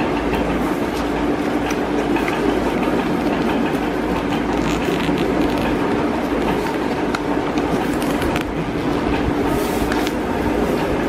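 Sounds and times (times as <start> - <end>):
mechanical hum: 0.0 - 11.0.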